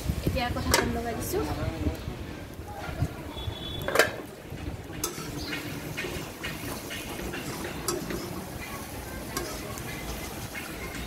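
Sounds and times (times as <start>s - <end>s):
spatula scraping in wok: 2.8s - 11.0s
metal lid clanking on wok: 3.9s - 11.0s.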